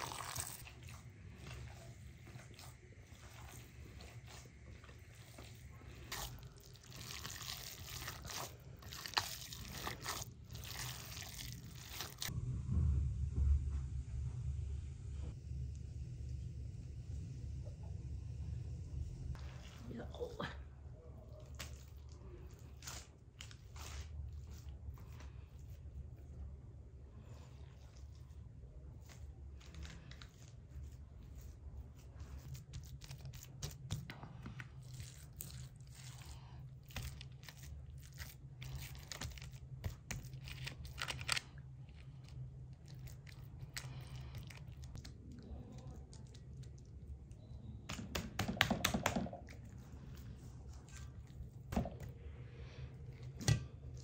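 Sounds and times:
low hum: 11.6s - 21.3s.

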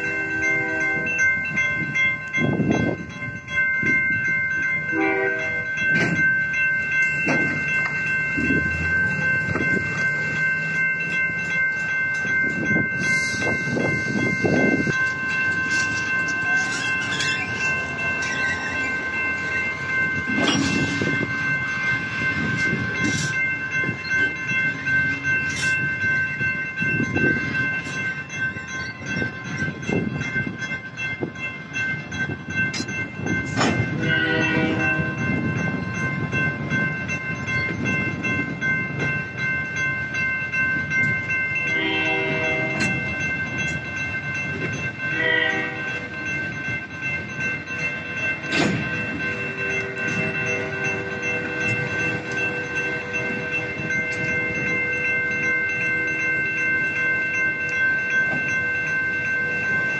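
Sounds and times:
train horn blasts: 0.0s - 1.2s, 4.9s - 5.6s, 34.0s - 35.3s, 41.8s - 43.0s, 45.1s - 46.0s
crossing bell ringing: 0.0s - 59.9s
train wheels rumbling and clicking: 0.0s - 59.9s.

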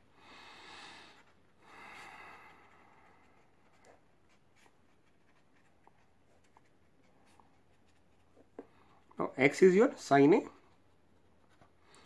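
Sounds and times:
pen scratching on paper: 3.1s - 8.6s.

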